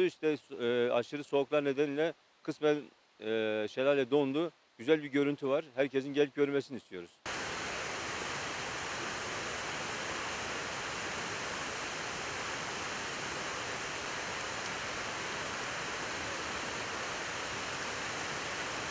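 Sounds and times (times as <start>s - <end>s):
waterfall roaring: 7.3s - 18.9s.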